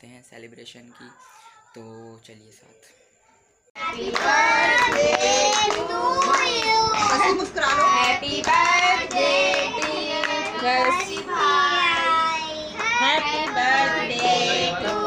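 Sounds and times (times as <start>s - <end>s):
children singing together: 3.8s - 15.0s
hand claps: 4.0s - 15.0s.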